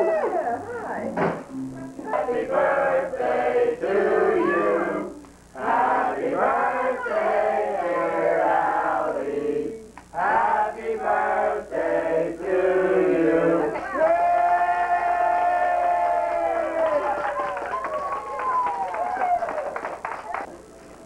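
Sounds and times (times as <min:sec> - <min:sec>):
recorded song with singing: 0:01.2 - 0:13.9.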